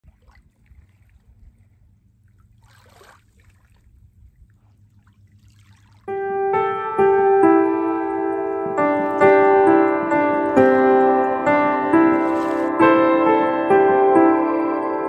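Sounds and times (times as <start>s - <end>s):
small waves lapping shoreline: 0.0s - 6.1s, 12.1s - 12.8s
piano music: 6.1s - 15.0s.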